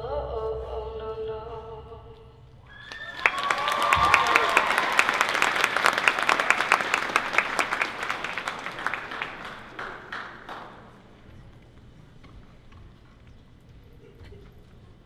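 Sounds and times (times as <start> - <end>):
audience applauding: 2.7 - 11.3.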